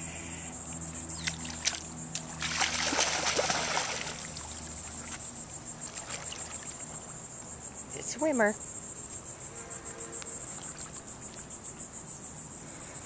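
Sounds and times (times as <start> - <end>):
insects trilling: 0.0 - 13.0
dog splashing in river: 1.2 - 5.2, 5.8 - 6.8.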